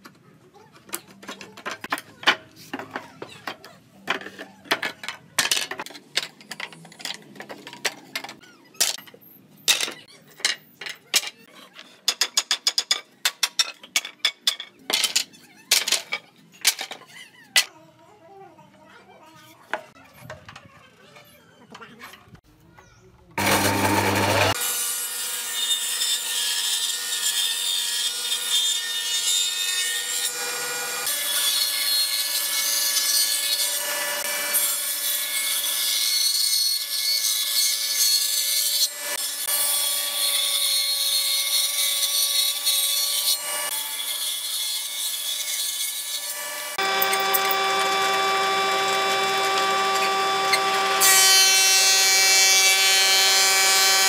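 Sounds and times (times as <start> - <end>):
thicknesser planing board: 23.4 - 24.8, 46.7 - 54.0
table saw cutting wood: 23.4 - 54.0.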